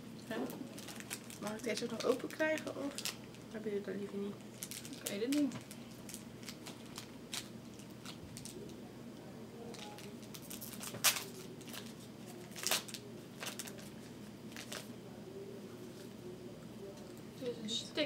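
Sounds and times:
snack wrapper crinkling and tearing: 0.7 - 3.4, 4.5 - 8.8, 9.7 - 14.9.

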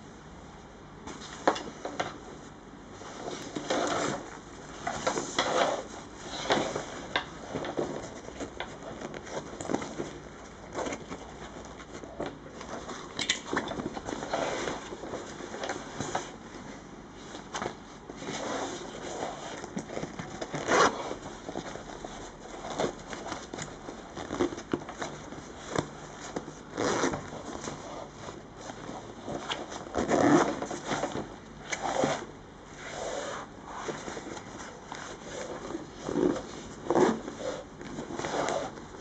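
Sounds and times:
fabric rustling and scraping: 1.0 - 39.0
zippers being worked: 18.4 - 23.4, 26.7 - 28.1, 29.0 - 33.4, 35.2 - 38.8.

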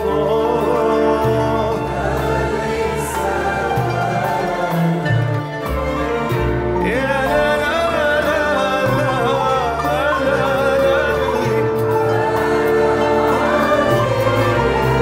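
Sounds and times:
violins: 0.0 - 15.0
man singing ornamented melody: 6.8 - 12.5.

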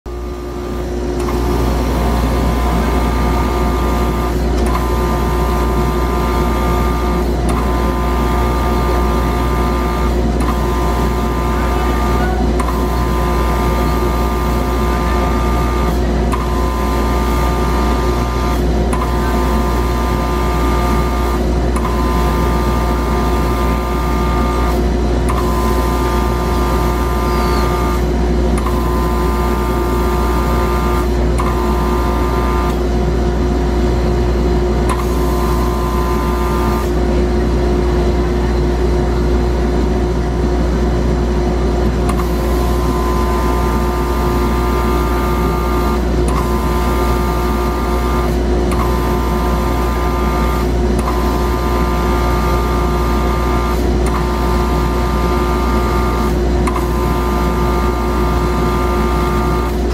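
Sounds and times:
cabinet low hum: 0.1 - 32.7.

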